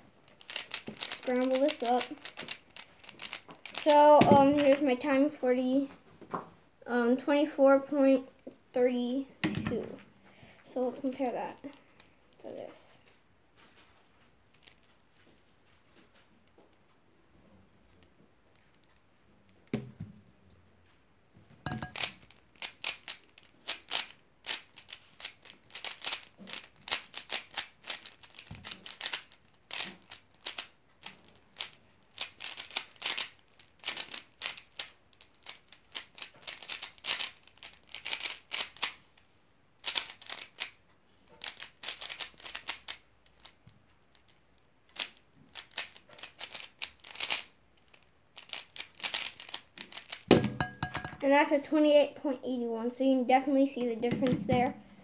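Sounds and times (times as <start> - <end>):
puzzle cube clicking: 0.4 - 4.8, 21.7 - 39.0, 39.8 - 40.8, 41.4 - 43.6, 44.9 - 51.1.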